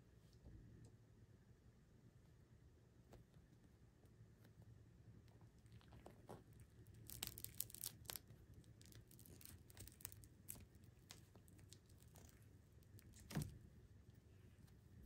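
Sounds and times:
gummy candy crackling and tearing: 5.6 - 13.5.

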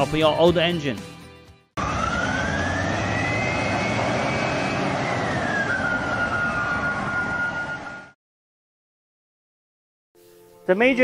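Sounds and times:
jet flyby rushing whine: 1.8 - 8.2.

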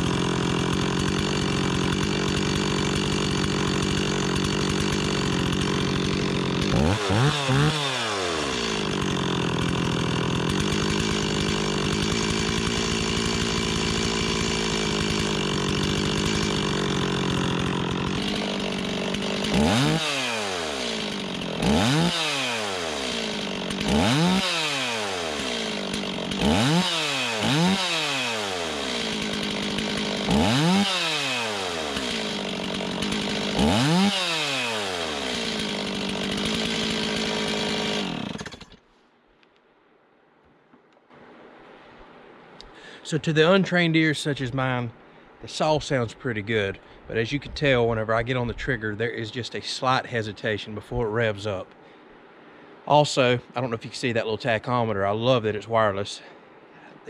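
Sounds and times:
chainsaw idling and revving: 0.0 - 38.8.

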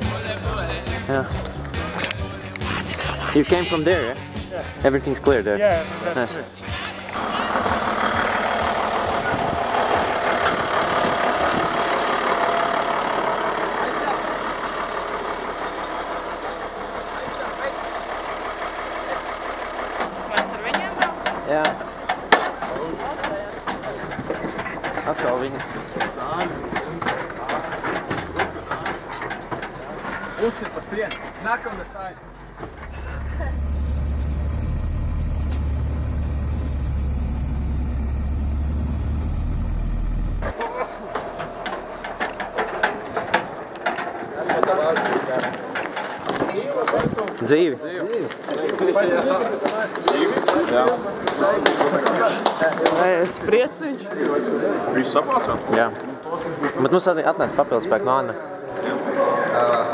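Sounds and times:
diesel truck engine idling: 0.0 - 43.8.

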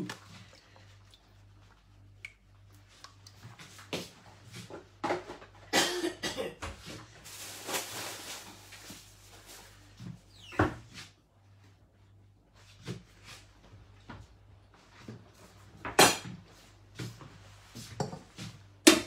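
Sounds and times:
low steady hum: 0.0 - 19.0
rustling: 7.2 - 9.9.

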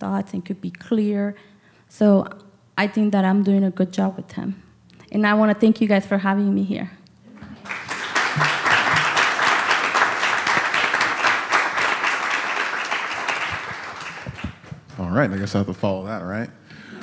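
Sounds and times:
audience applauding: 7.4 - 15.6.

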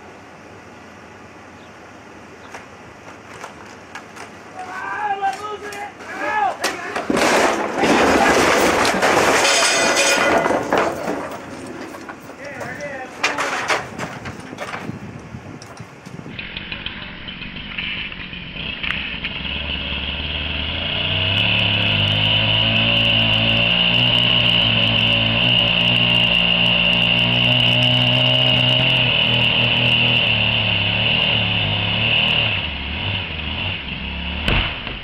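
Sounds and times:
sharp crack: 6.6 - 12.5, 34.4 - 35.0
chainsaw cutting: 16.3 - 34.5.

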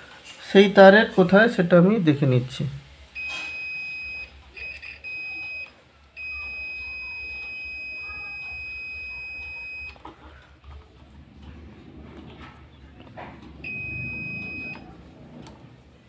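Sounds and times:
multimeter continuity beeps: 3.1 - 10.0, 13.6 - 14.9.

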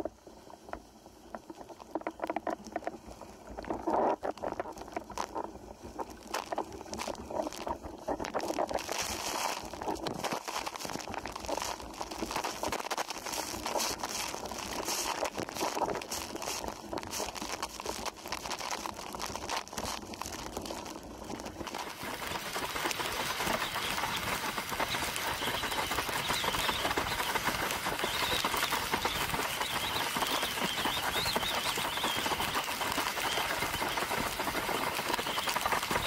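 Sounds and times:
rush of wind and spray: 19.8 - 36.0
board hull slapping waves: 21.6 - 36.0.

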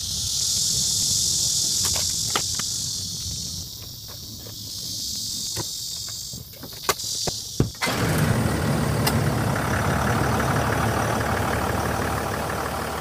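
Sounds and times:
insect chorus buzzing: 0.0 - 8.1.

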